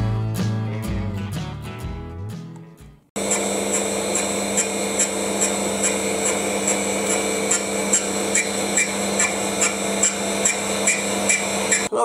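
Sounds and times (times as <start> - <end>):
motor whine and hum: 3.2 - 11.9.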